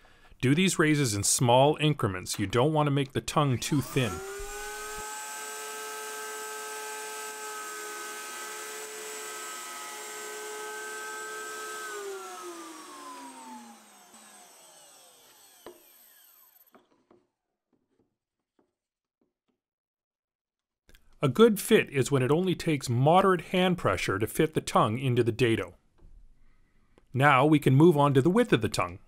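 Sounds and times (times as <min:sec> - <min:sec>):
router high whine: 0:03.5 - 0:16.8.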